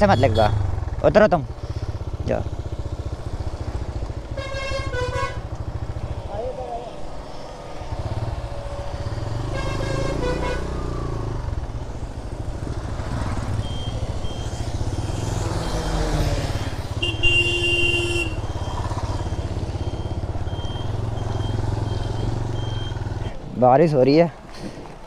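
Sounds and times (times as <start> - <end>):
motorcycle engine running: 0.0 - 6.9, 7.9 - 23.3
vehicle horn: 4.3 - 5.7, 9.4 - 10.9, 16.9 - 18.6.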